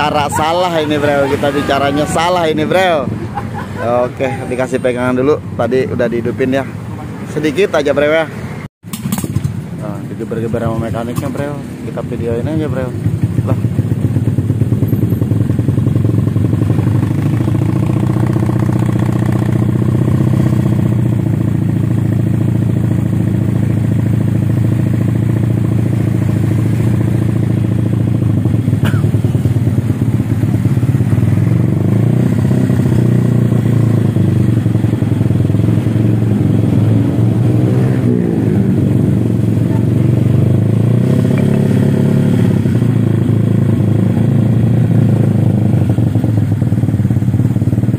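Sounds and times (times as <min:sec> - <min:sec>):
scooter engine revving: 0:13.0 - 0:47.9.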